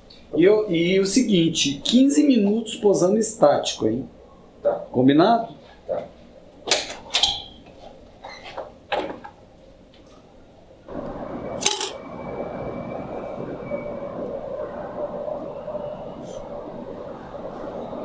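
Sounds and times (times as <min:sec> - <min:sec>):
city street traffic rumble: 0:10.6 - 0:18.0.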